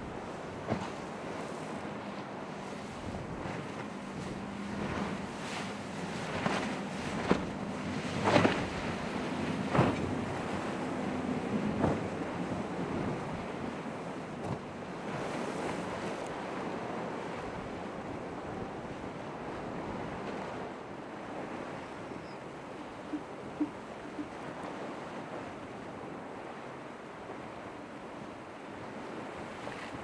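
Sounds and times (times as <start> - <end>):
ocean surf washing: 0.0 - 30.0.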